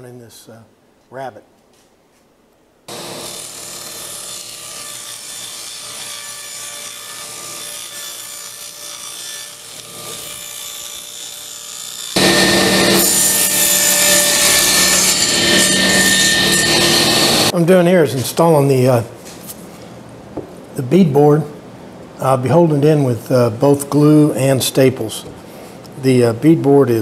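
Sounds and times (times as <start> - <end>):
table saw cutting wood: 2.9 - 17.5.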